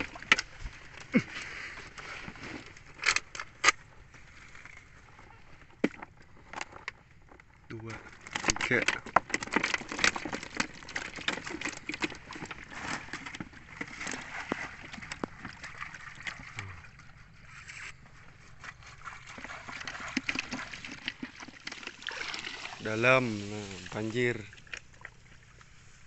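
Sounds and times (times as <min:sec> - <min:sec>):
bamboo fish trap rattling: 0:00.0 - 0:03.9, 0:04.5 - 0:25.5
water dripping and trickling: 0:19.0 - 0:25.7.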